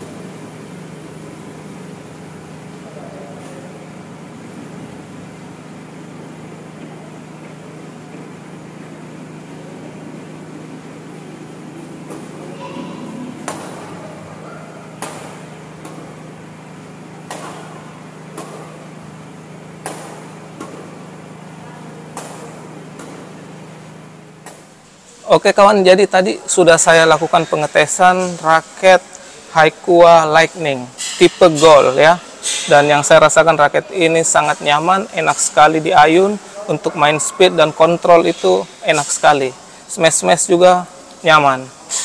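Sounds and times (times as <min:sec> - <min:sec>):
steady low hum: 0:00.0 - 0:42.0
rackets hitting shuttlecock: 0:11.8 - 0:21.4, 0:22.0 - 0:23.6, 0:24.3 - 0:24.7.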